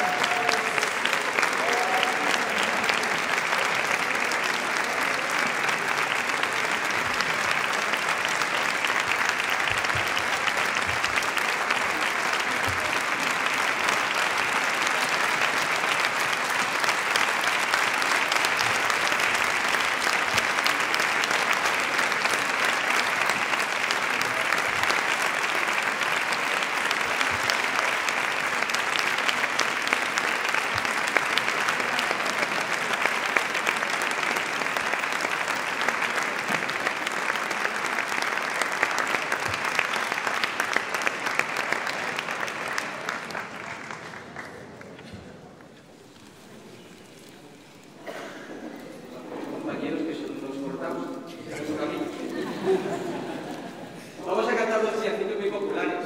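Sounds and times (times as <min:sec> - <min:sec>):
audience applauding: 0:00.0 - 0:55.8.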